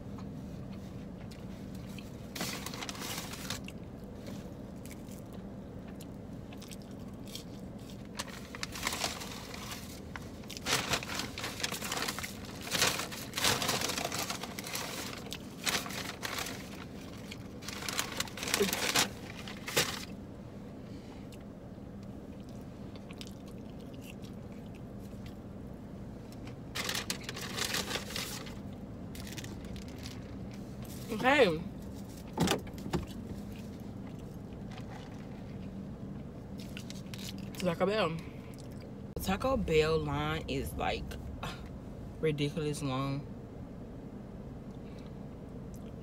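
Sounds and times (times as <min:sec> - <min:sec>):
steady low hum: 0:00.0 - 0:46.0
paper bag crinkling: 0:02.4 - 0:03.7, 0:08.2 - 0:10.0, 0:10.6 - 0:20.2, 0:26.7 - 0:28.6.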